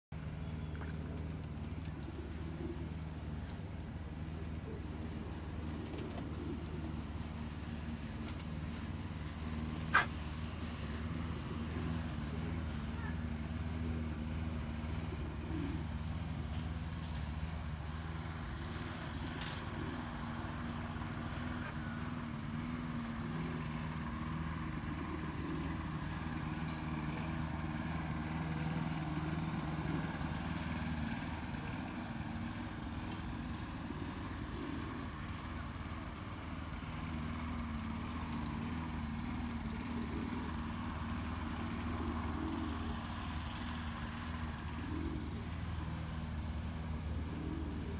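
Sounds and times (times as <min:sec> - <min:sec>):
low engine hum: 0:00.1 - 0:47.9.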